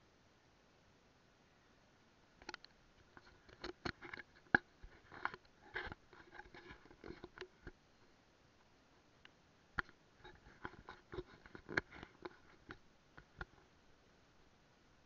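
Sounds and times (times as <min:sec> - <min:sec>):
close-up clicks and knocks: 0:02.4 - 0:07.8, 0:09.2 - 0:13.6.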